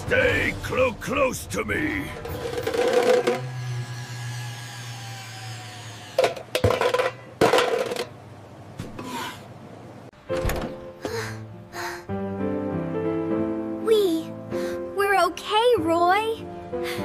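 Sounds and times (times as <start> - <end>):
cans clattering: 2.2 - 3.5, 6.2 - 8.2
tin can rolling on tiles: 2.2 - 3.5.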